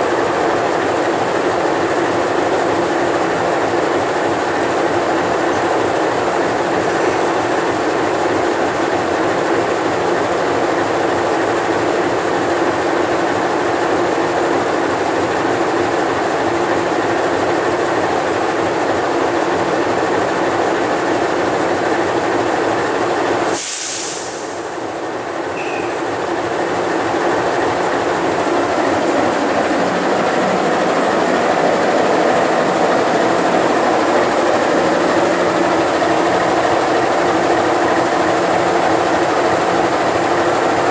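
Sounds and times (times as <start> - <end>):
diesel locomotive engine idling: 0.0 - 40.9
short sharp hiss: 23.5 - 24.8.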